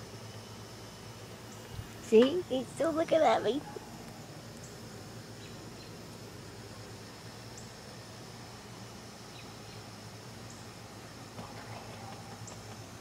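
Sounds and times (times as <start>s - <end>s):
high insect drone: 0.0s - 13.0s
low steady hum: 0.0s - 13.0s.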